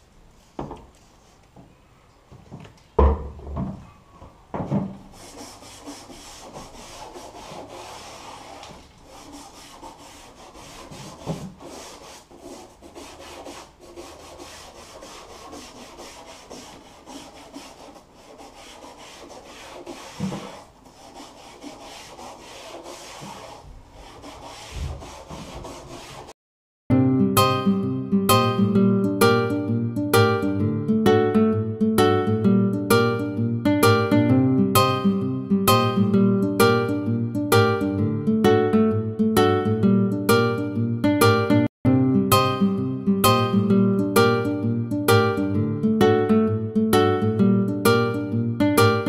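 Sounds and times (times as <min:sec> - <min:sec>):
toothbrush scrubbing plastic: 0:05.2 - 0:26.3.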